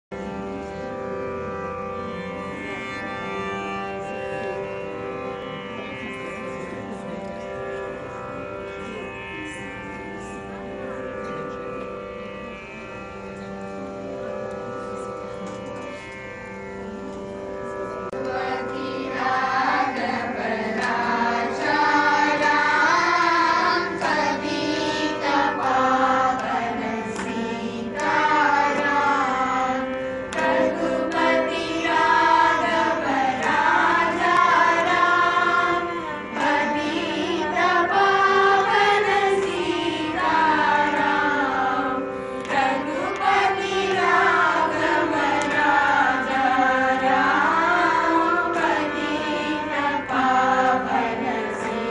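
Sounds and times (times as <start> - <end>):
steady drone: 0.1 - 51.9
violin accompaniment: 0.2 - 51.9
children and women singing: 18.2 - 51.9.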